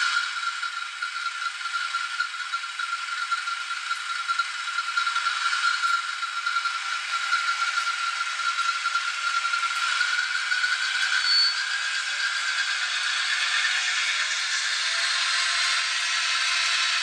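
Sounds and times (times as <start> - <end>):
model train motor whine: 0.0 - 17.0.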